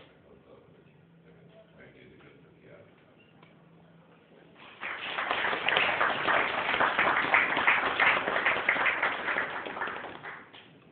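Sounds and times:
audience applauding: 0:04.6 - 0:10.7.

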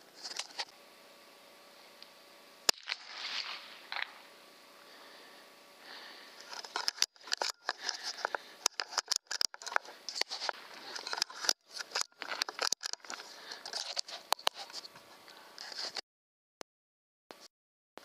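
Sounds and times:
suppressed air rifle shots: 0:02.7 - 0:04.2.

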